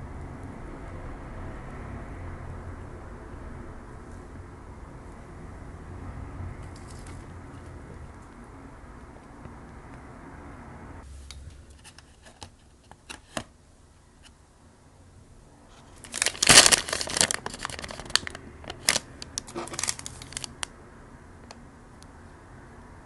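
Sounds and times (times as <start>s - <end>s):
paper bag crinkling: 15.7s - 20.7s.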